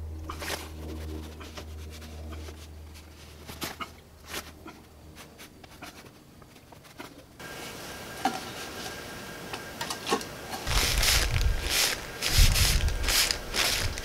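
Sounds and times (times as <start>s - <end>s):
paper towel rubbing on fabric: 10.7s - 14.0s.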